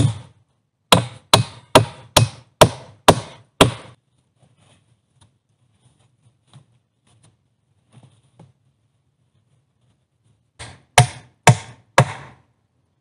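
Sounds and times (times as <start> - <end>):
axe chopping: 0.0 - 4.0, 10.6 - 12.4
faint taps and scrapes: 4.1 - 10.5.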